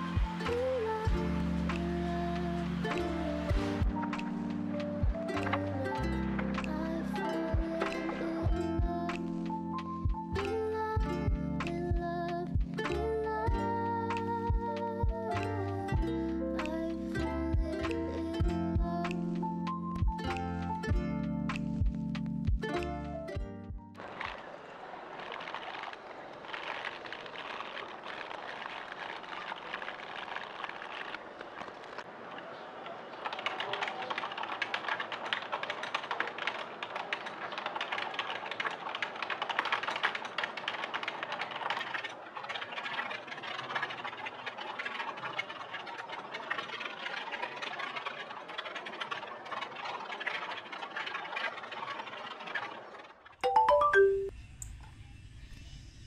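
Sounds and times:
fast keyboard typing: 32.9 - 43.6.

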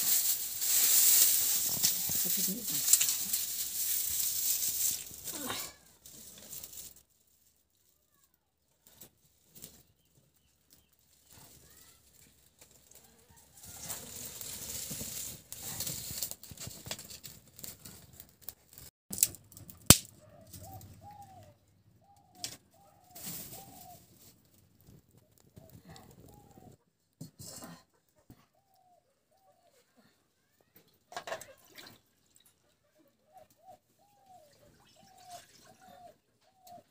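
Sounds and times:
twigs and straw crackling: 0.0 - 26.8
sharp snap of twig: 19.9 - 20.1.

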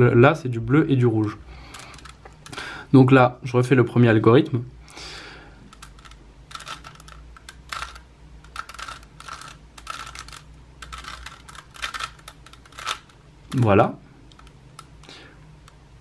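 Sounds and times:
puzzle cube clacking: 1.2 - 2.6, 5.6 - 15.8.

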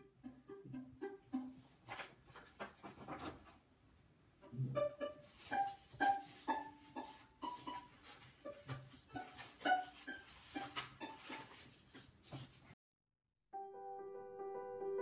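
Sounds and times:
violin plucked notes: 0.0 - 1.6, 4.5 - 11.2
paper rustling: 1.8 - 3.6, 7.9 - 12.8.

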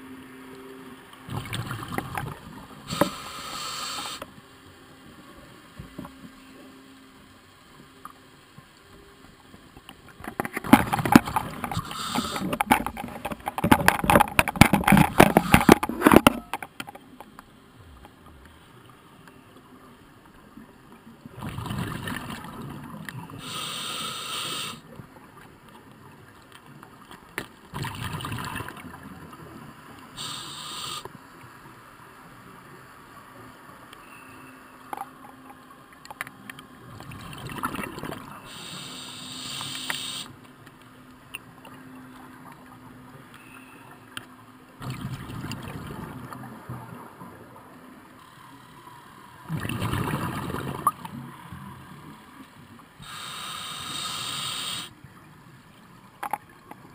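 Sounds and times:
diver inhaling through regulator: 2.9 - 4.2, 11.7 - 12.6, 23.4 - 24.8, 30.2 - 31.1, 38.5 - 40.3, 53.0 - 54.9
exhaled bubbles rumbling: 21.3 - 23.0, 27.7 - 29.0, 44.8 - 46.4, 49.5 - 51.1.

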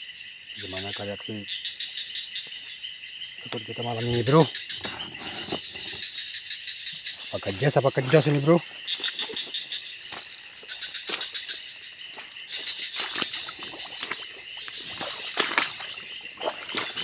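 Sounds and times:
crickets and insects trilling: 0.0 - 17.0
footsteps rustling through undergrowth: 7.2 - 17.0.

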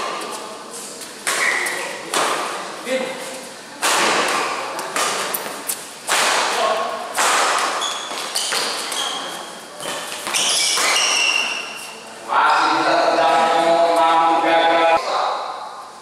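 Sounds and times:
court shoes squeaking: 1.0 - 2.0, 7.5 - 12.0
rackets hitting shuttlecock: 1.2 - 2.6, 3.8 - 9.1, 9.8 - 11.5.

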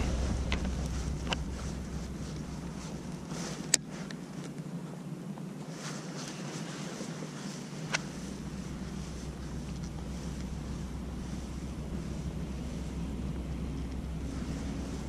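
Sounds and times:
wind buffeting microphone: 0.0 - 5.7, 6.4 - 15.0.

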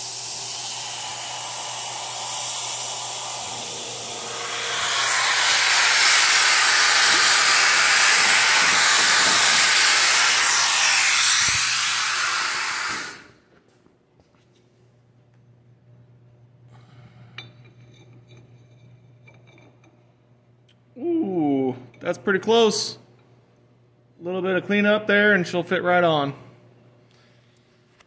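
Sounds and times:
low hum: 0.0 - 12.2
compressed air hissing: 0.0 - 13.4.

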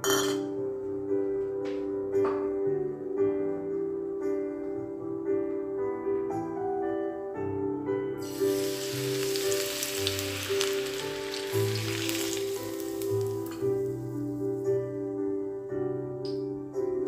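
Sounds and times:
soft piano music: 0.0 - 17.0
hot oil sizzling and crackling: 8.2 - 14.6.

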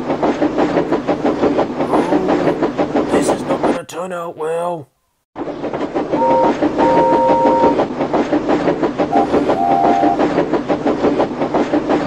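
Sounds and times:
steam train chuffing and clattering: 0.0 - 4.0, 5.4 - 12.0
steam train whistle: 6.2 - 7.8, 9.1 - 10.2.

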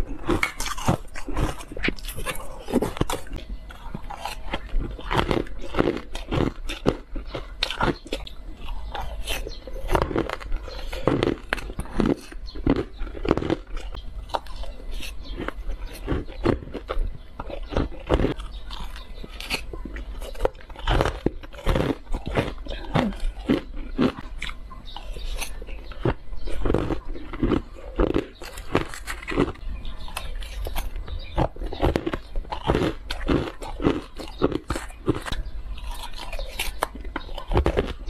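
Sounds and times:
chewing crunchy ice: 0.0 - 38.0.

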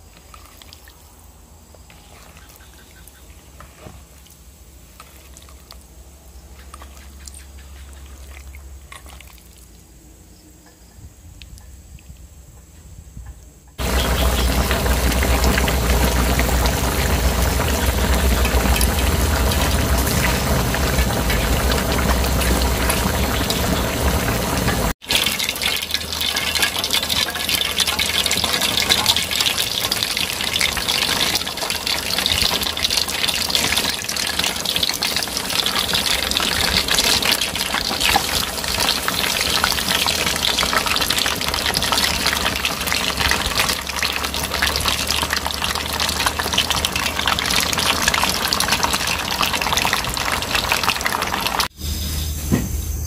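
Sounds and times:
low hum: 13.8 - 25.0
deep-frying sizzle in oil: 13.8 - 53.0.

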